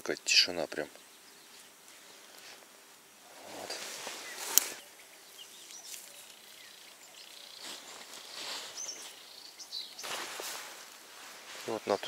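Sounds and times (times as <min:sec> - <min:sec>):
bird chirps: 0:04.0 - 0:10.4.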